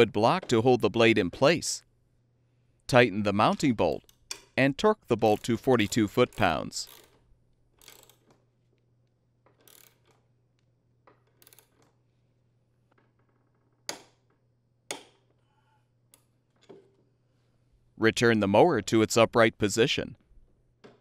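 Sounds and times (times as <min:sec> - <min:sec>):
torque wrench ratcheting clicks: 0:05.3 - 0:07.2, 0:07.8 - 0:08.3, 0:09.6 - 0:10.2.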